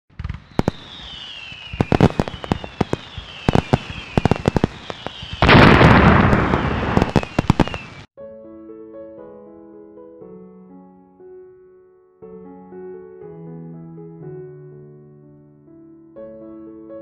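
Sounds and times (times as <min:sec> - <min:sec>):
falling fireworks whistles: 0:00.1 - 0:08.1
fireworks bangs and pops: 0:00.1 - 0:08.1
fireworks burst crackling: 0:00.1 - 0:08.1.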